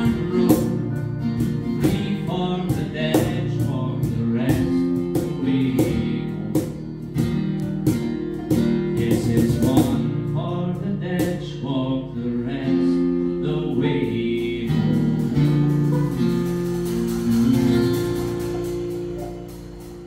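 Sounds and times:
banjo: 0.0 - 6.8, 14.7 - 19.4
cajon: 0.0 - 11.6, 13.4 - 20.0
acoustic guitar strumming: 0.0 - 20.0.

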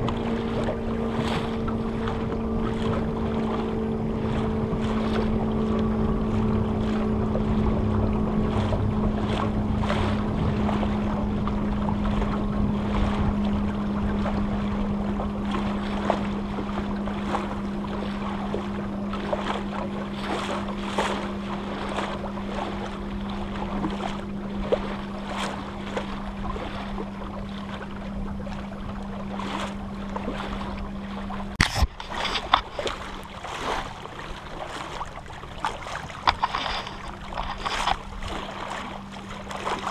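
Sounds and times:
wind on microphone: 0.0 - 19.0
steady low hum: 0.0 - 39.9
water splashing against boat hull: 0.0 - 39.9.

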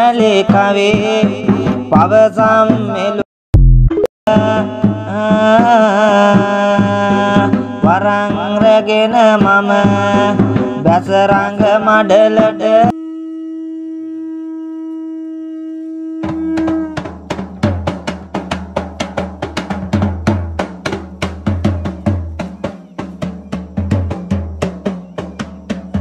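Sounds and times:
fast barrel drumming: 16.3 - 26.0.

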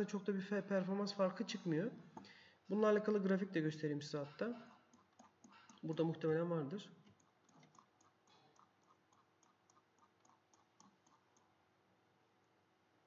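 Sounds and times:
mouse scroll wheel clicks: 7.1 - 11.5.

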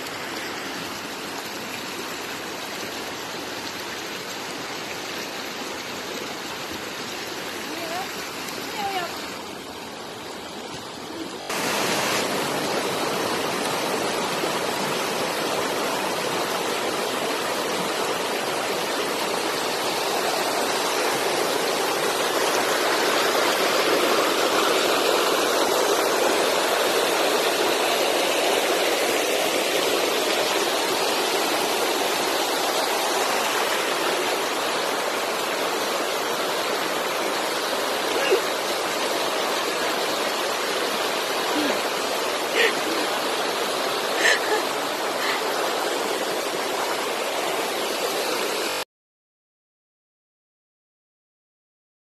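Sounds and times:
stream rushing over stones: 0.0 - 48.8.

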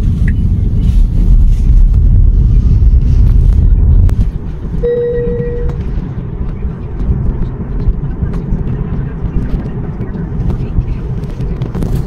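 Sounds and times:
tyre and wind noise in car: 0.0 - 12.0
steady tone: 3.8 - 6.8.

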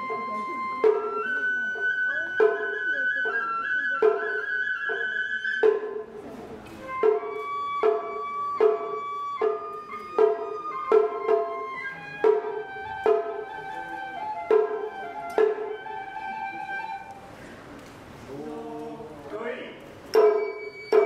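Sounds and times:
taiko drum strikes: 0.0 - 2.9, 4.9 - 13.6, 14.4 - 15.7, 20.1 - 21.0
bamboo flute melody: 0.0 - 17.4, 20.1 - 21.0.

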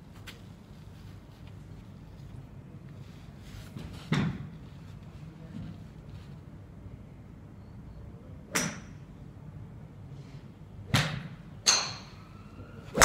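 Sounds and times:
golf clubs striking balls: 8.5 - 9.0, 10.9 - 12.2.

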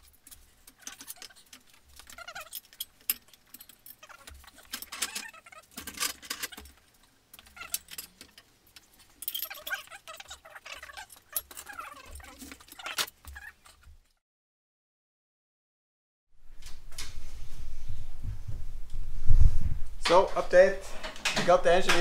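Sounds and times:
short squeaks: 0.0 - 6.8, 7.4 - 8.5, 9.2 - 14.0
hand tools clattering: 0.0 - 13.8
metal engine hoist rattling: 0.0 - 13.8.

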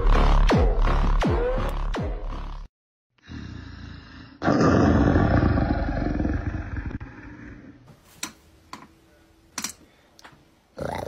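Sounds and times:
low growling roar: 3.3 - 7.9.

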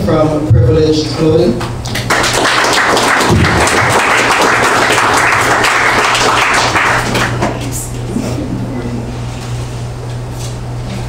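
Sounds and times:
audience applauding: 1.9 - 7.7.

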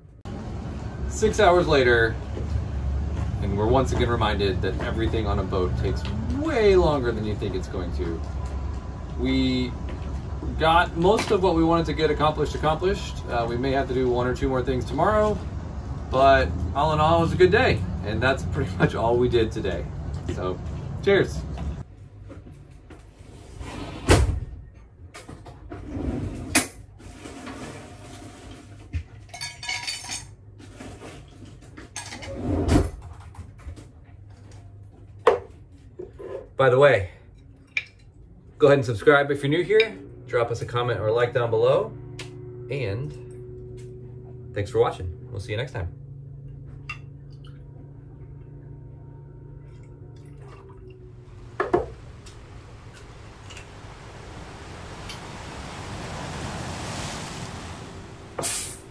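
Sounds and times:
steady low hum: 37.1 - 58.9
liquid sounds of drink mixing: 49.6 - 57.1.

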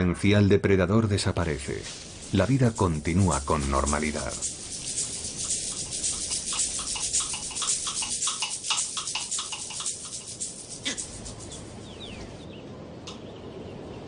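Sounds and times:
animal chattering call: 2.2 - 12.3
faint bird chirps: 10.7 - 14.0.

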